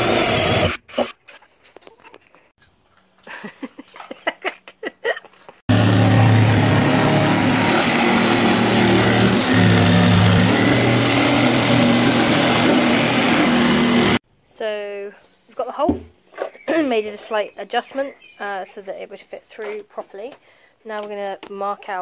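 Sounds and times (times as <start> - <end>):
jigsaw cutting plastic: 0.0 - 1.2, 5.7 - 14.2.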